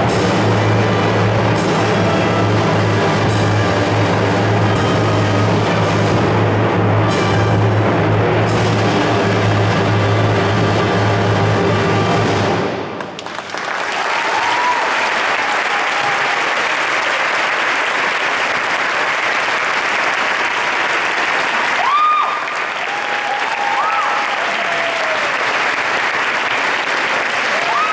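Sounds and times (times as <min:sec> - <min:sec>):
audience applauding: 0:13.0 - 0:27.9
voices cheering: 0:13.8 - 0:17.4, 0:21.6 - 0:25.7, 0:27.1 - 0:27.9.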